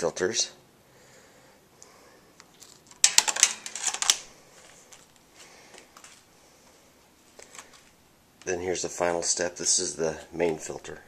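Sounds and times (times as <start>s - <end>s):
metallic clicks and rattles: 2.6s - 4.2s.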